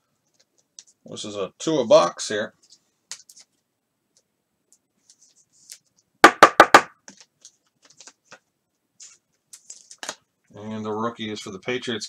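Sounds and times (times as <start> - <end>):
quick sharp knocks: 6.2 - 6.9.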